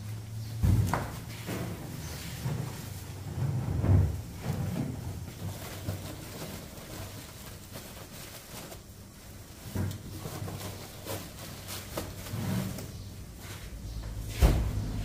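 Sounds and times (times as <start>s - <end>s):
low hum: 13.0s - 15.0s
heavy thuds: 13.6s - 15.0s.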